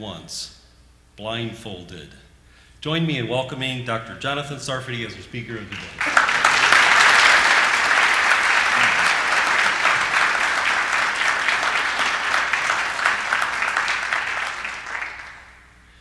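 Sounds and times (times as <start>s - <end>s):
audience applauding: 5.6s - 15.7s.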